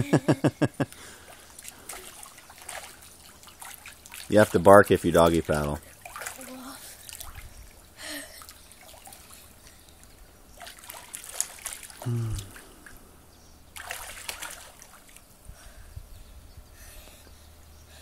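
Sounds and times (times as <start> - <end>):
water splashing and trickling: 0.8 - 13.1, 13.7 - 15.3.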